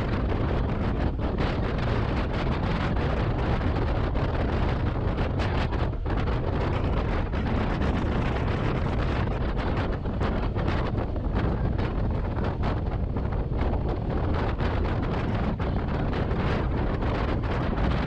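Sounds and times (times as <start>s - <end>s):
wind roaring over microphone: 0.0s - 18.0s.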